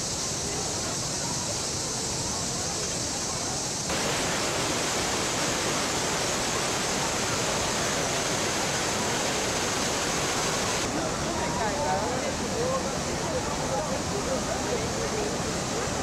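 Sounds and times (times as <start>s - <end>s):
faint crowd voices: 0.0s - 3.9s, 10.9s - 16.0s
waterfall rushing: 0.0s - 16.0s.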